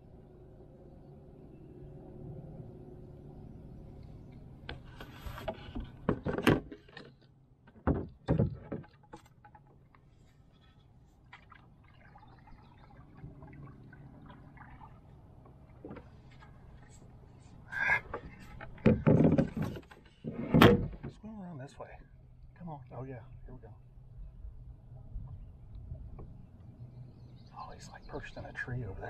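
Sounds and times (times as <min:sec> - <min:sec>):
wooden paddle knocking on canoe: 0:07.7 - 0:09.7
water splashing: 0:11.0 - 0:17.1.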